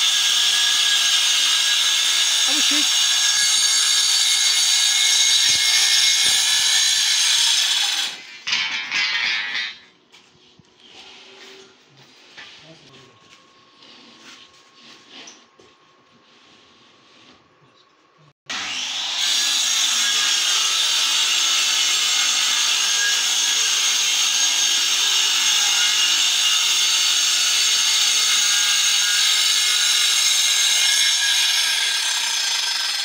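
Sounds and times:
circular saw cutting board: 0:00.0 - 0:09.8, 0:18.5 - 0:33.0.

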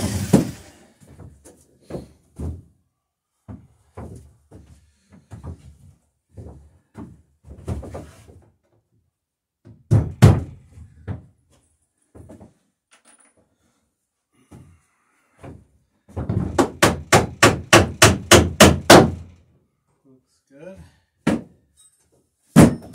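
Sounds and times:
hammer striking nail into wood: 0:16.4 - 0:19.3, 0:22.6 - 0:22.9.

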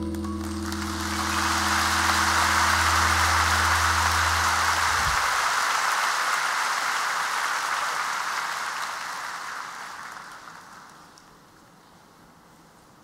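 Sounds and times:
band holding low chord: 0:00.0 - 0:05.8
concert audience applauding: 0:00.0 - 0:11.2.

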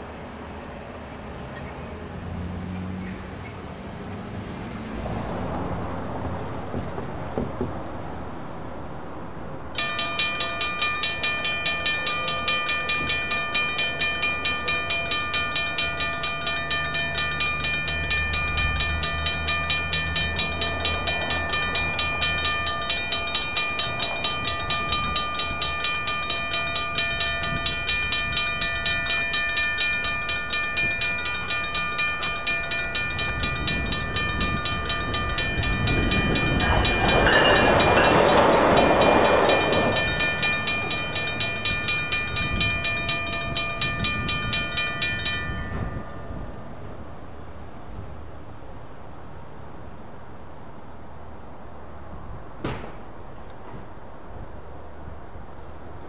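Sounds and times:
train rumble: 0:00.0 - 0:48.5
crossing warning bell ringing: 0:09.8 - 0:46.9.

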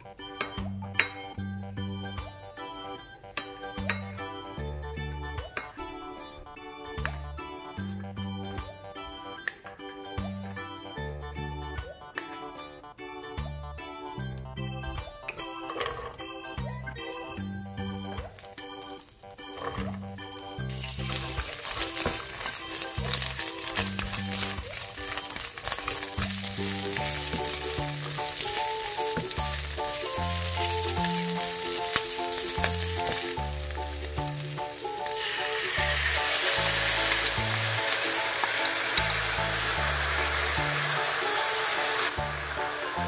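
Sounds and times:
vegetables sizzling in a pan: 0:17.8 - 0:43.0
sauce hitting hot pan: 0:20.7 - 0:43.0.

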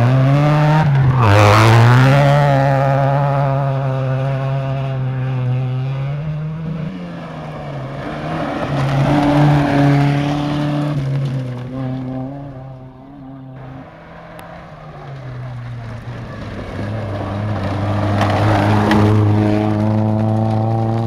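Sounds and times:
rally car engine at full throttle: 0:00.0 - 0:21.0
tyres rushing on loose gravel: 0:07.1 - 0:12.2, 0:13.6 - 0:21.0.

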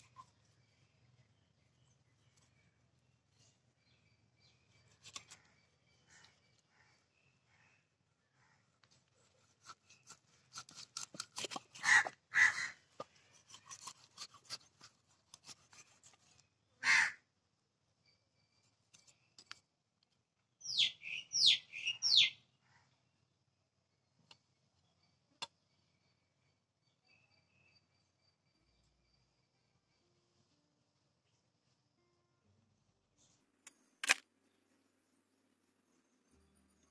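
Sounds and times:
knife cutting fish on wood: 0:09.4 - 0:12.0, 0:13.3 - 0:16.2
crow cawing: 0:11.8 - 0:12.8, 0:16.8 - 0:17.2.

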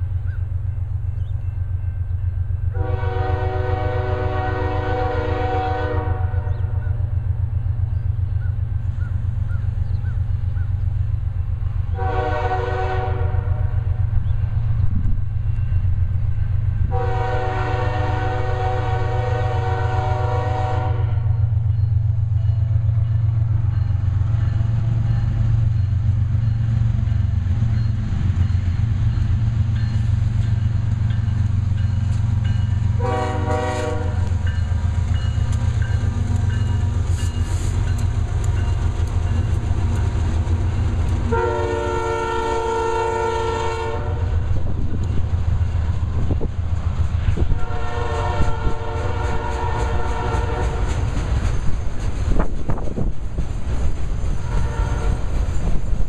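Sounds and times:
freight train rumbling: 0:00.0 - 0:56.0
locomotive air horn blasts: 0:02.7 - 0:07.0, 0:11.9 - 0:14.0, 0:16.9 - 0:21.4, 0:32.9 - 0:34.6, 0:41.3 - 0:44.4, 0:47.4 - 0:50.9, 0:54.4 - 0:55.3.

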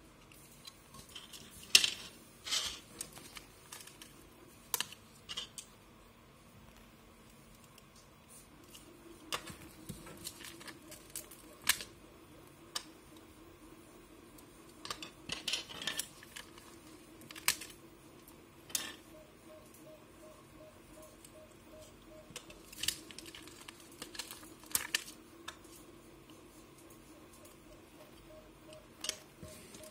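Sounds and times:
faint steady hum: 0:00.0 - 0:29.9
crinkly rustle: 0:22.4 - 0:27.1.

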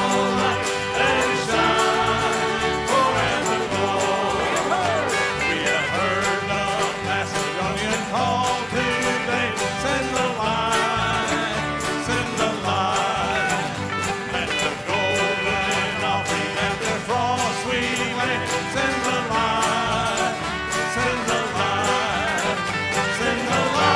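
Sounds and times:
banjo picking: 0:00.0 - 0:23.9
bluegrass band playing: 0:00.0 - 0:23.9.

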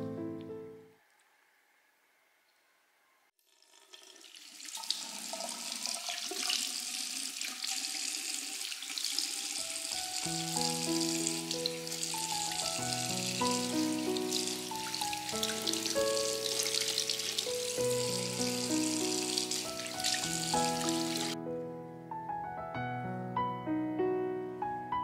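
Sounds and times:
background music sustained notes: 0:00.0 - 0:01.0, 0:09.6 - 0:25.0
tap water splashing into sink: 0:03.5 - 0:10.0.

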